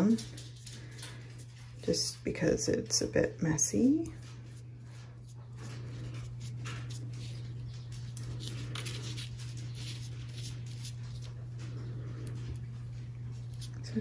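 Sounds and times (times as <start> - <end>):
steady low hum: 0.0 - 14.0
paintbrush bristles scratching paper: 4.2 - 11.4.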